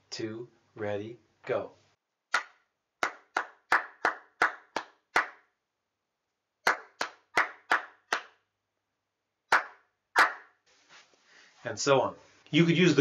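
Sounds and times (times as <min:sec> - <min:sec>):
hands clapping a rhythm: 0:02.3 - 0:05.5, 0:06.6 - 0:08.4, 0:09.5 - 0:10.5.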